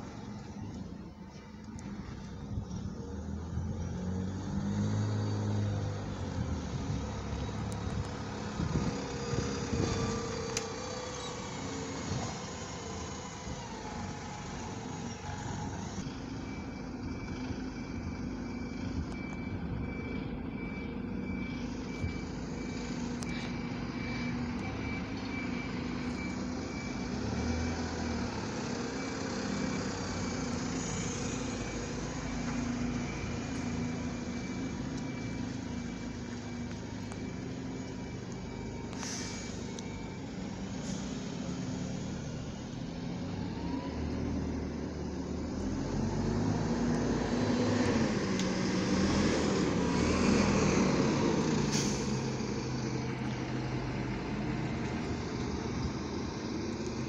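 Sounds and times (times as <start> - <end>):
diesel bus engines: 0.0 - 57.0
reversing beep: 14.8 - 45.2.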